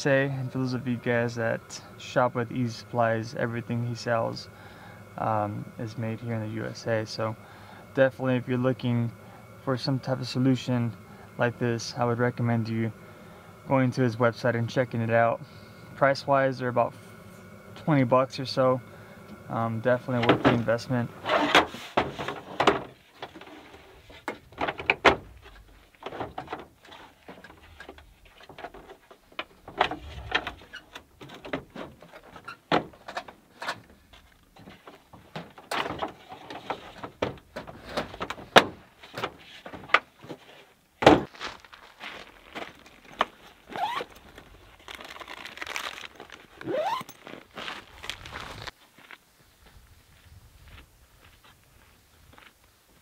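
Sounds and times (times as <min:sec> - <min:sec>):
gear handling clicks and thuds: 0:20.1 - 0:48.8
short rising squeaks: 0:43.7 - 0:44.2, 0:46.6 - 0:47.4.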